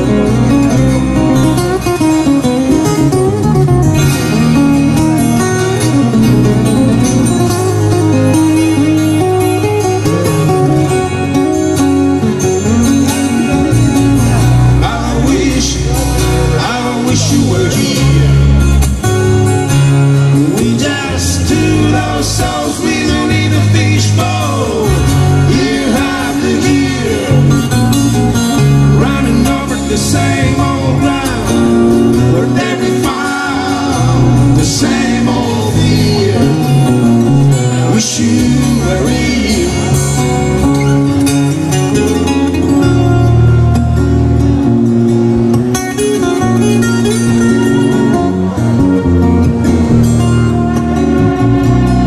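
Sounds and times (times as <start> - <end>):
bass guitar: 0.0 - 52.0
strummed acoustic guitar: 0.0 - 52.0
man singing: 14.4 - 18.8, 20.3 - 41.0.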